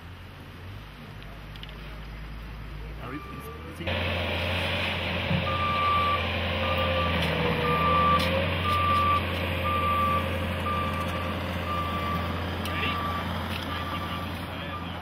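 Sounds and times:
engine droning: 0.0s - 15.0s
backup alarm beeping: 3.1s - 3.8s, 5.5s - 15.0s.

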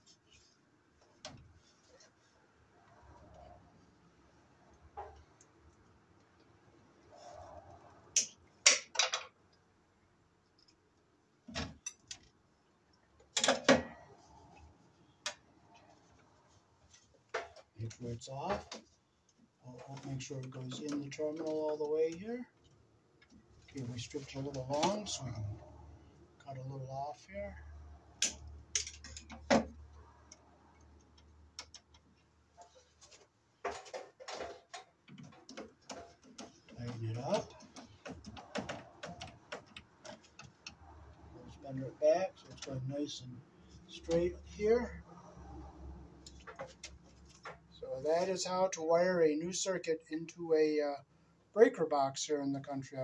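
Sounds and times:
wire strippers clicking and snapping: 8.1s - 9.6s, 28.2s - 41.6s.

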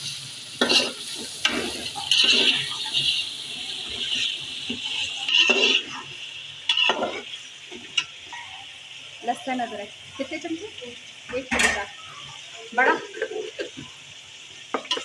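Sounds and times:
chicken sizzling in hot oil: 0.0s - 15.0s
metal spoon scraping a pot: 0.6s - 3.1s, 4.9s - 5.9s, 6.7s - 7.2s.

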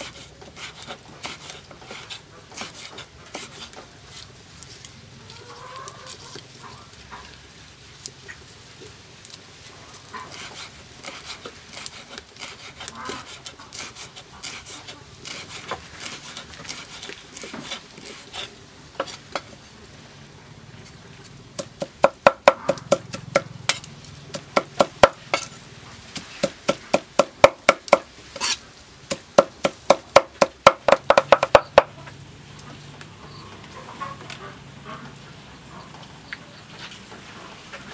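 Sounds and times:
cleaver chopping on wooden block: 21.6s - 25.5s, 26.2s - 31.9s.

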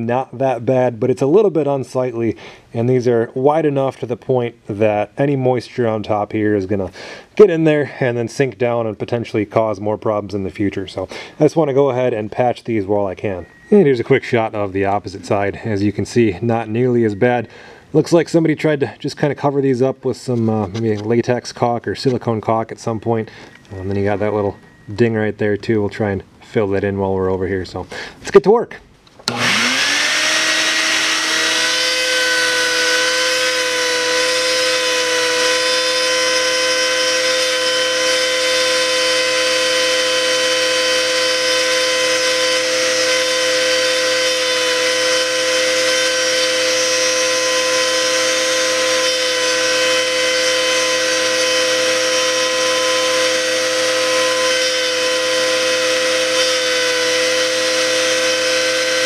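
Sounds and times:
bit grinding: 29.2s - 59.0s
rotary tool whining: 29.2s - 59.0s.

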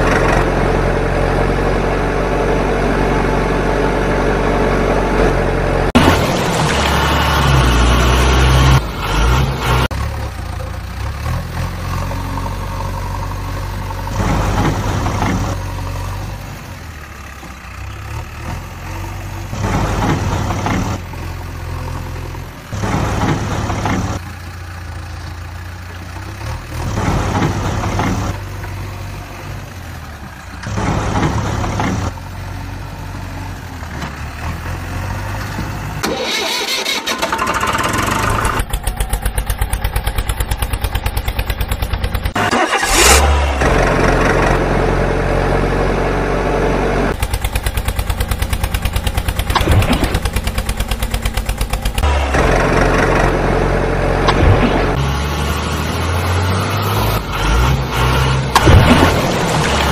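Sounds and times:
heavy vehicle engine idling: 9.8s - 55.0s.

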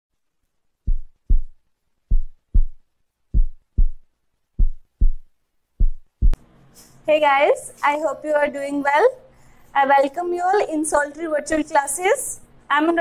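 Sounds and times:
heartbeat thumps: 0.8s - 6.4s.

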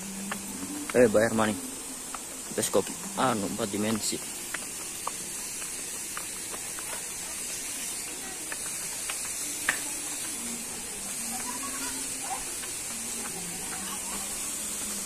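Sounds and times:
high-pitched outdoor hiss: 0.0s - 15.0s
faint distant voices: 6.3s - 15.0s.

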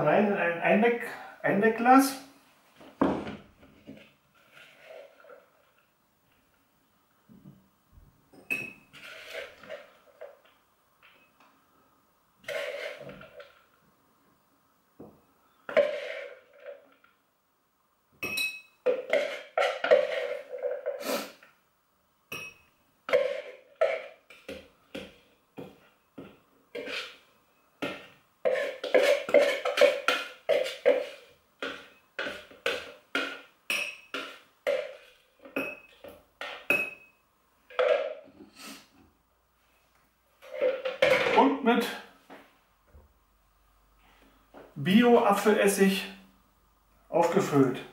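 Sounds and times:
metal spoon scraping jug: 4.4s - 5.6s, 8.5s - 10.1s, 12.4s - 13.6s, 15.7s - 16.9s, 18.4s - 21.4s, 26.7s - 27.2s, 28.4s - 37.0s
spoon tapping glass jar: 18.2s - 19.0s, 22.3s - 22.7s, 36.7s - 37.1s.

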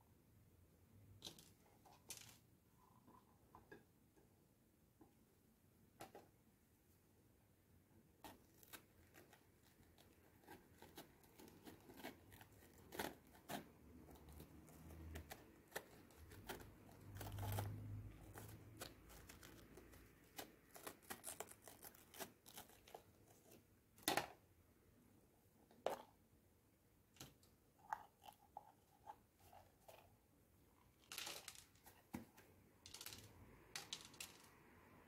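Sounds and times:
knife cutting bell pepper: 10.4s - 17.8s.

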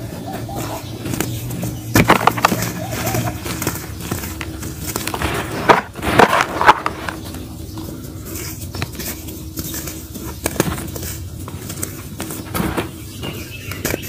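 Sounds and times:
dry dirt crunching: 0.0s - 14.0s
loose dirt rustling: 0.0s - 14.0s.

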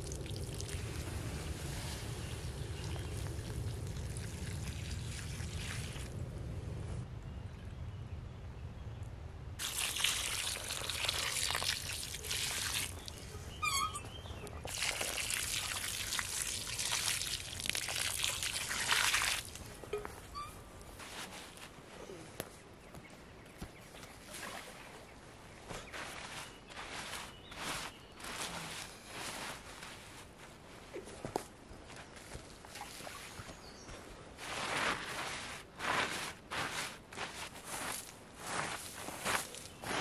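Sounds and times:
water pouring onto embers: 0.0s - 6.2s, 9.6s - 13.2s, 14.7s - 19.7s
water splashing: 2.8s - 6.2s, 9.6s - 13.2s, 14.6s - 19.7s.

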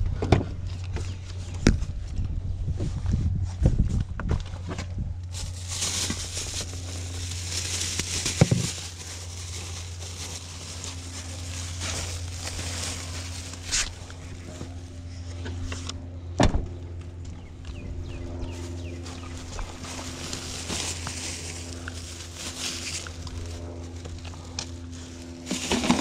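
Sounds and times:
low hum: 0.0s - 26.0s
plastic bags crinkling: 5.3s - 14.9s, 18.8s - 24.0s, 25.3s - 26.0s.

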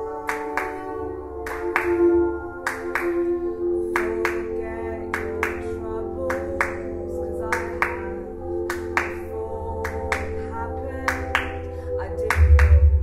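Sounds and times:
woman singing: 0.0s - 13.0s
sharp hand claps: 0.2s - 3.3s, 4.0s - 4.5s, 5.1s - 5.7s, 6.3s - 6.9s, 8.7s - 10.4s, 11.1s - 11.6s, 12.3s - 12.8s.

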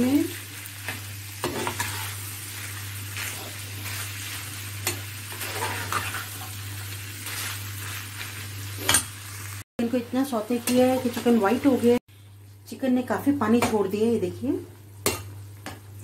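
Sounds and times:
chicken sizzling in butter: 0.0s - 12.0s
spatula scraping frying pan: 0.8s - 9.1s.

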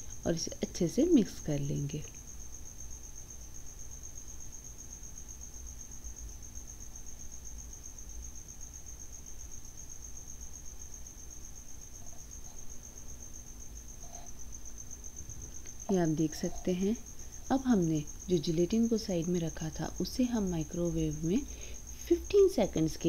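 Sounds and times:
faint low hum: 0.0s - 23.0s
insect trilling: 10.1s - 23.0s.

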